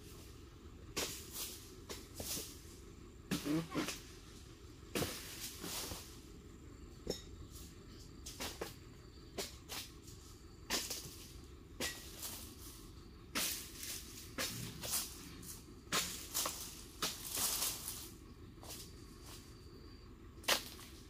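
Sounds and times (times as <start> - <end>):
rustling crunches in dry leaves: 5.1 - 6.3, 12.0 - 19.6.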